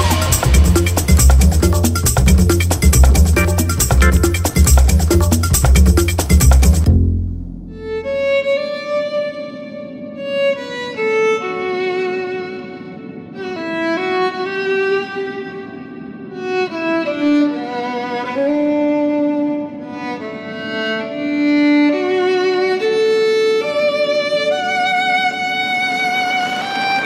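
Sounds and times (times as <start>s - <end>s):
loud beat-driven music: 0.0s - 7.0s
slow violin melody: 7.6s - 27.0s.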